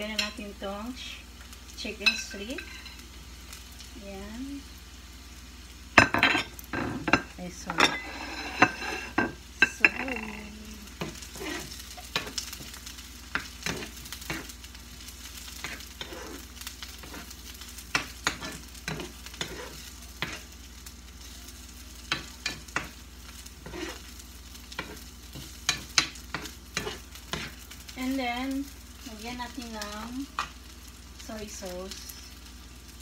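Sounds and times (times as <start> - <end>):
chicken sizzling in a skillet: 0.0 - 33.0
spatula scraping a pan: 6.1 - 10.4, 11.0 - 20.6, 22.0 - 27.8.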